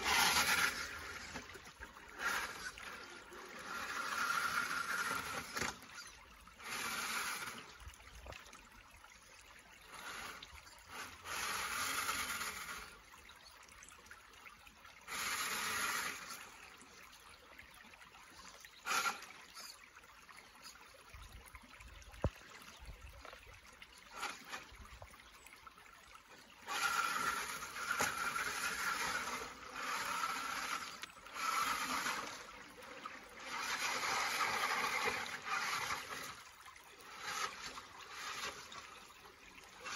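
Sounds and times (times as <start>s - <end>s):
toy car motor whining: 0.0s - 8.0s, 9.8s - 13.4s, 15.0s - 17.2s, 18.3s - 20.6s, 23.2s - 25.2s, 26.6s - 39.9s
water splashing: 0.0s - 9.2s, 17.8s - 39.9s
creek water running: 0.0s - 39.9s.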